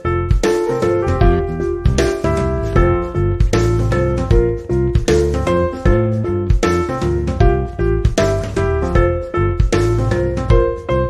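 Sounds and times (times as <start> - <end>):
keyboard tune over a beat: 0.0 - 11.0.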